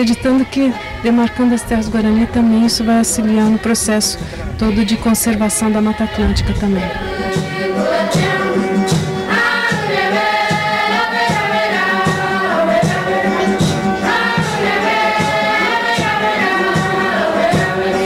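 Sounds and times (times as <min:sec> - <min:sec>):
group singing in chorus: 0:00.0 - 0:18.0
drum beating steadily: 0:05.6 - 0:18.0
guitar: 0:06.2 - 0:18.0.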